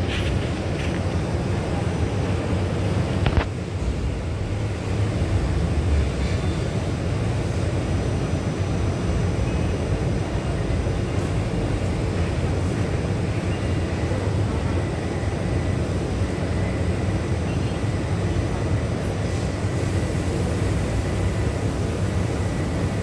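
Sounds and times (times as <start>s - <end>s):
train humming and rumbling: 0.0s - 23.0s.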